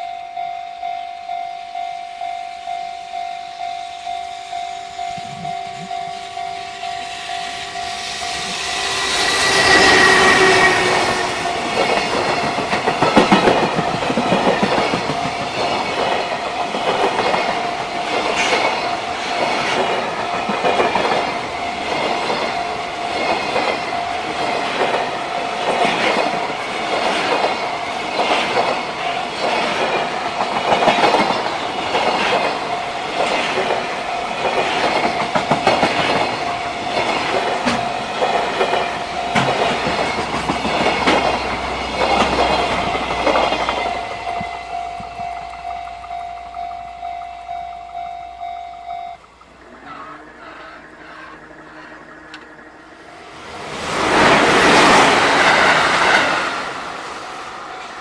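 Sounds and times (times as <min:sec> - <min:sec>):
steady high tone: 0:00.0 - 0:26.8, 0:27.5 - 0:58.0
train wheels clattering over rail joints: 0:08.2 - 0:46.1.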